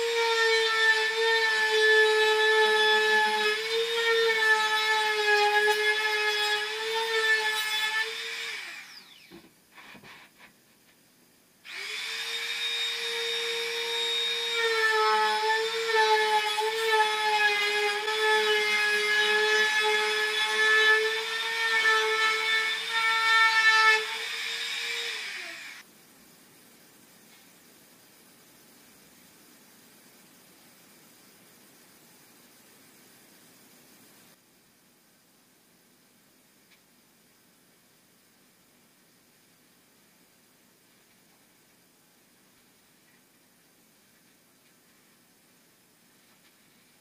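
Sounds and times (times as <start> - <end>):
trim router whining: 0.0 - 9.4, 11.7 - 18.5, 19.3 - 25.8.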